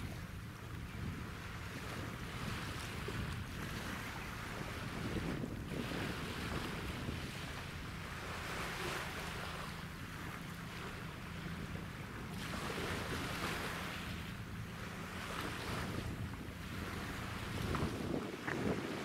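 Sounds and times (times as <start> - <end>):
wind gusting on microphone: 0.0 - 8.9, 15.2 - 19.0
ship engines droning: 0.0 - 19.0
waves washing: 0.0 - 19.0.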